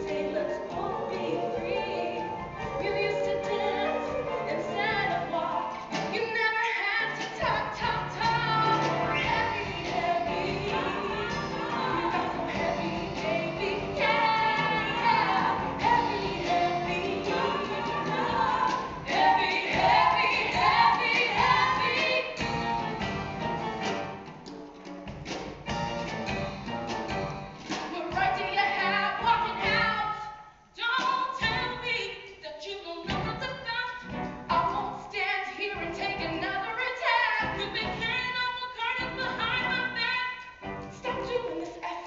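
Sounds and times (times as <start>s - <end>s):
orchestra accompaniment: 0.0s - 6.4s, 7.1s - 29.9s, 34.0s - 34.9s
women singing: 0.0s - 23.0s, 27.9s - 30.2s, 30.8s - 40.4s, 41.0s - 42.0s.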